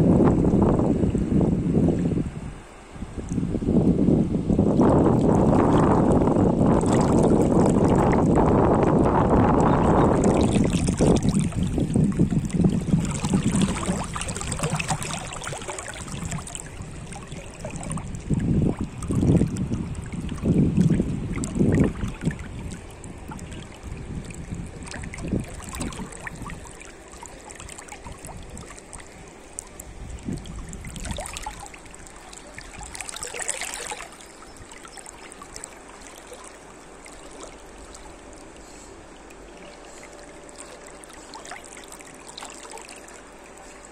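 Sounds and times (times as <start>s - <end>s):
low rumbling gusts: 0.0s - 26.8s, 28.0s - 33.0s
river water rippling: 0.0s - 43.9s.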